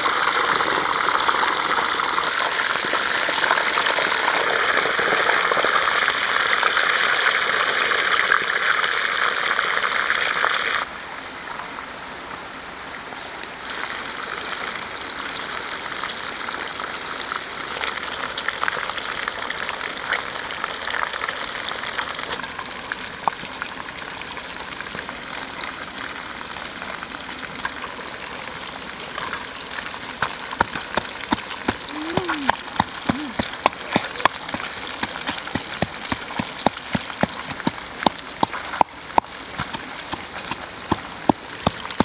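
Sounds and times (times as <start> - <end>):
fish sizzling in hot oil: 0.0 - 10.8, 13.7 - 41.9
oil crackling pops: 29.7 - 42.0.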